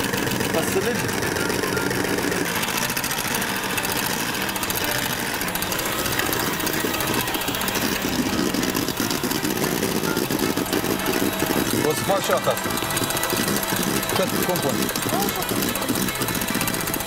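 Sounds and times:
electric hand mixer running: 0.0s - 17.0s.

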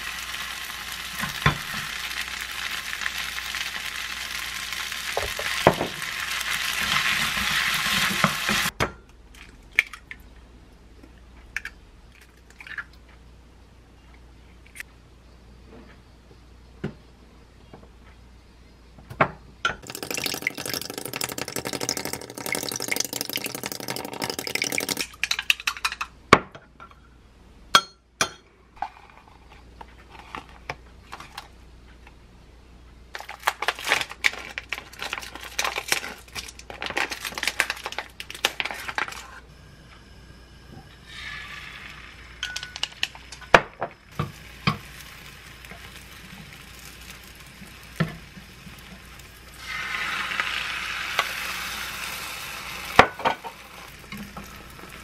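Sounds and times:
egg sizzling in a pan: 0.0s - 8.8s, 19.8s - 25.7s, 40.5s - 55.0s
plastic food package crinkling: 33.2s - 39.3s.

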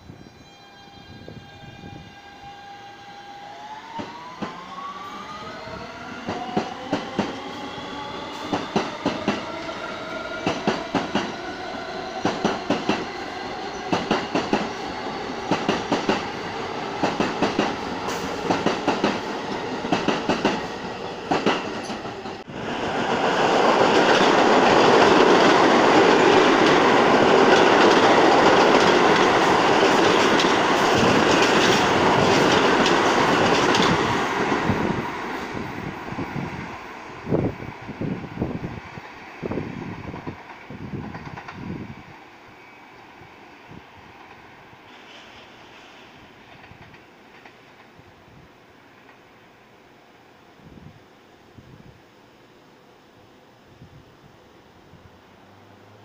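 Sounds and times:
subway train motor whine: 0.0s - 45.0s
passing train wheels rushing on rail: 0.1s - 51.0s
wheels clacking over rail joints: 23.6s - 34.8s.

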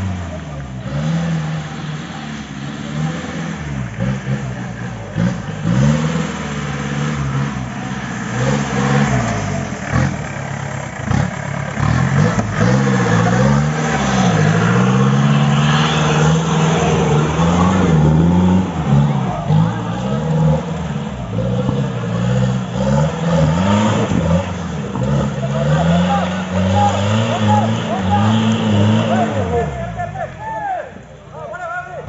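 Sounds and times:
off-road engine revving hard: 0.0s - 30.8s.

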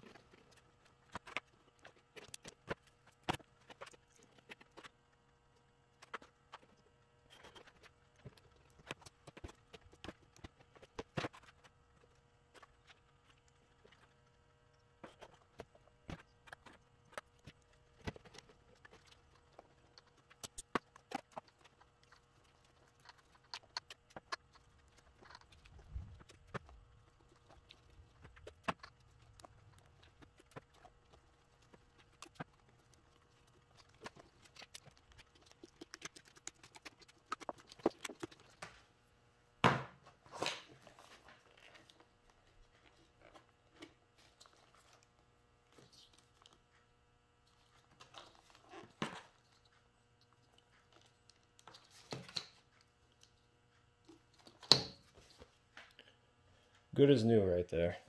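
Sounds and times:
faint steady hum: 0.0s - 58.0s.

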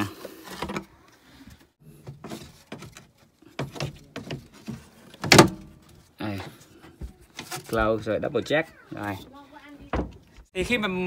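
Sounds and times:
metal cover knocks and rattles: 3.6s - 5.7s.

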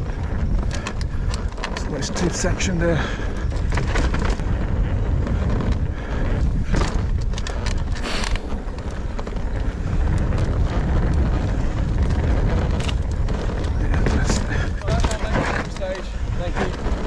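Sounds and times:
mountain bike rumble and rattle: 0.0s - 17.0s
wind buffeting microphone: 0.0s - 17.0s.

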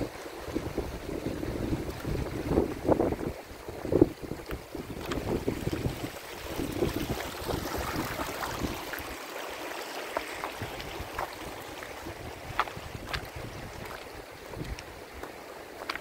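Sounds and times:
wind buffeting microphone: 0.0s - 9.1s, 10.6s - 15.3s
stream running over stones: 0.0s - 16.0s.

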